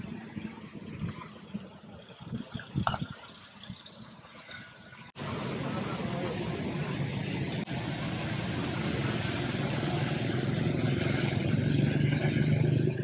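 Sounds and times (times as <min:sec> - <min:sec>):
vehicle engine running: 0:05.2 - 0:13.0.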